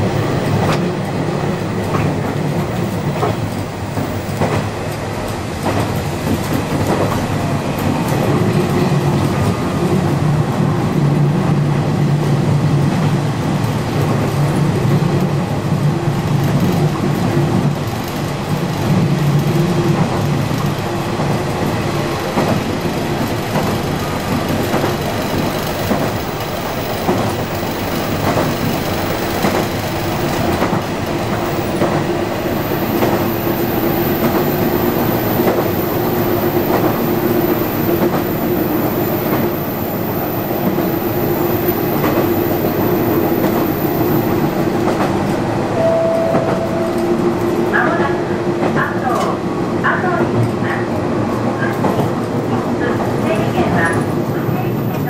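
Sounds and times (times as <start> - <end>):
railcar engine drone: 0.0 - 55.0
short higher tone: 45.8 - 47.5.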